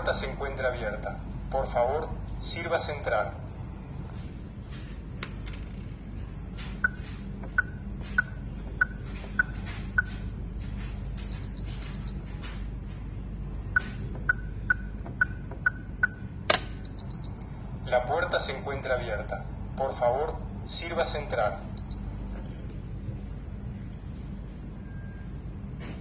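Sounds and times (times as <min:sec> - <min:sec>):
keypad beeping: 0:11.2 - 0:12.3, 0:13.8 - 0:17.4, 0:21.8 - 0:22.1
higher pulsed beeps: 0:16.8 - 0:17.4.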